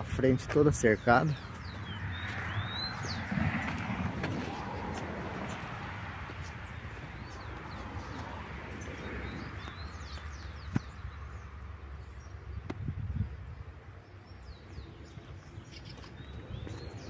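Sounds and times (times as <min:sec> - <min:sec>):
birds chirping: 0:00.0 - 0:17.0.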